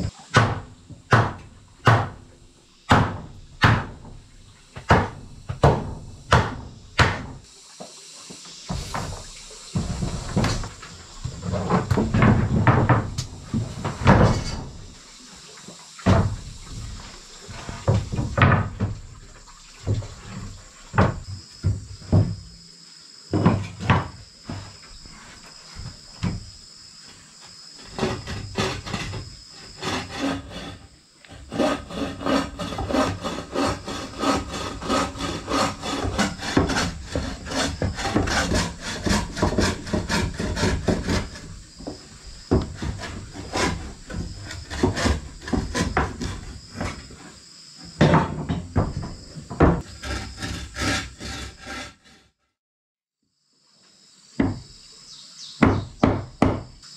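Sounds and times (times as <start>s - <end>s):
wooden knocks: 0.3s - 2.2s, 2.9s - 4.2s, 4.8s - 7.4s, 8.7s - 14.8s, 19.9s - 22.5s, 32.8s - 47.0s, 47.9s - 50.2s
bow saw cutting wood: 27.8s - 47.3s, 49.8s - 52.5s.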